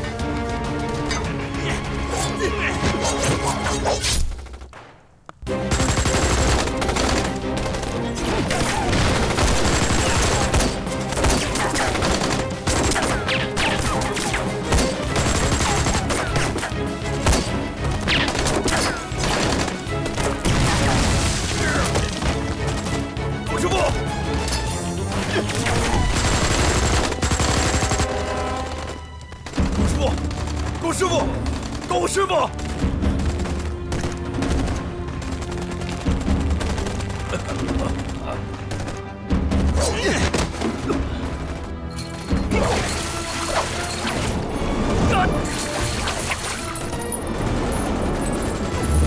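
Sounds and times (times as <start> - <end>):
rapid machine-gun fire: 5.6 - 16.4, 25.6 - 28.2, 28.8 - 37.4, 38.0 - 39.8
automatic gunfire: 5.7 - 7.9, 8.5 - 13.8, 25.7 - 28.2.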